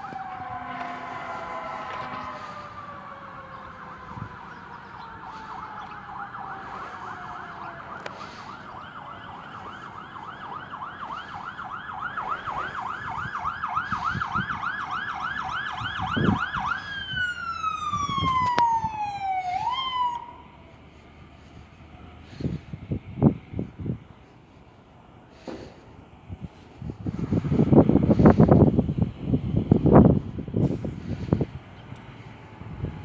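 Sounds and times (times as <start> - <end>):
fire engine siren wailing and yelping: 0.0 - 33.0
low horn blast: 0.2 - 3.1.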